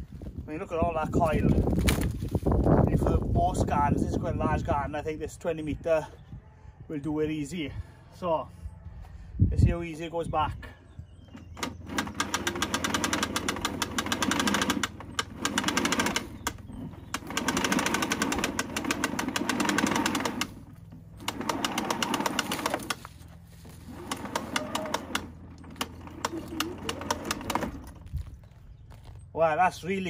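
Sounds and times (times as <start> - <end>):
hose reel mechanism clicking: 11.4 - 28.0.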